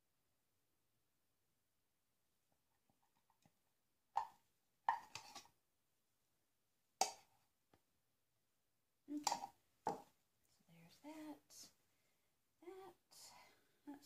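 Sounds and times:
soap batter plopping: 3.1s - 5.6s
spatula scraping plastic pitcher: 4.9s - 5.5s.

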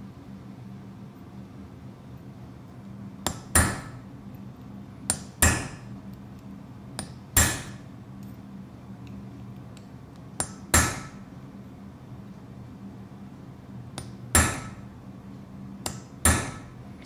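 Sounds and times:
faint low hum: 0.0s - 17.0s
hammer striking chisel on metal: 3.2s - 4.0s, 5.1s - 6.0s, 7.0s - 7.9s, 10.4s - 11.3s, 14.0s - 14.9s, 15.8s - 16.8s.

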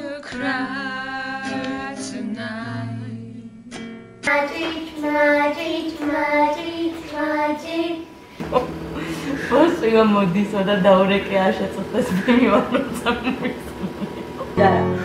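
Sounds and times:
woman singing slow song: 0.0s - 9.7s, 14.3s - 15.0s
children singing: 4.3s - 8.2s.

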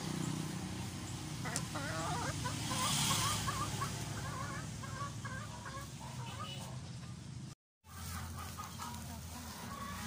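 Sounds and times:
chicken clucking: 1.4s - 7.2s, 7.9s - 10.0s.

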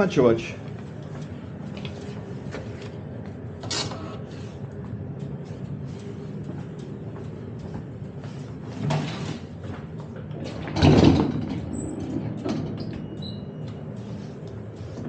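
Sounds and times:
tram door mechanism: 8.8s - 14.8s.

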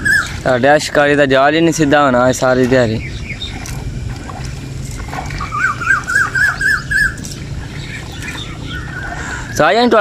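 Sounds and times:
steady low hum: 0.0s - 10.0s
animal calling rising notes: 5.4s - 9.6s.

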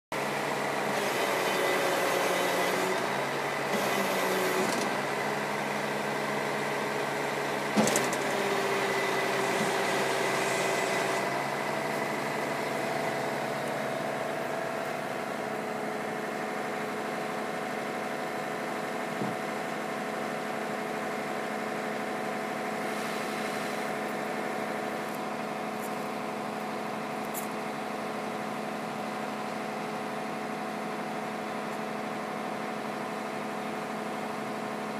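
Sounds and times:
truck engine running: 0.2s - 34.9s
hydraulics working: 0.4s - 17.9s.

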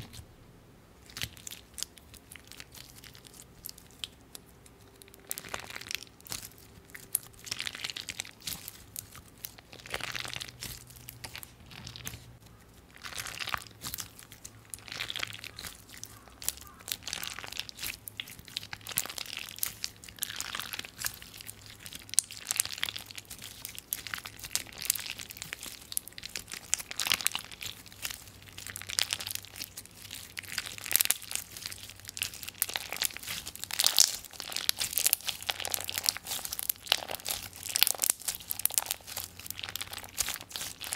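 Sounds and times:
bead slime crunching: 1.0s - 40.9s.

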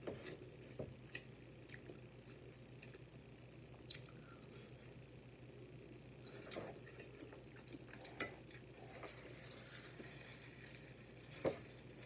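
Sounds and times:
chewing: 6.3s - 9.4s.

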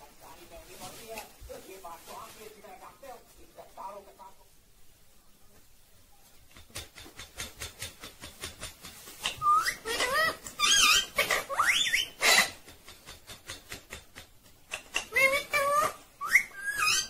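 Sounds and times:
parakeet squawks: 9.2s - 12.6s, 15.0s - 17.0s
parakeet whistled calls: 9.3s - 12.5s, 15.7s - 17.0s.

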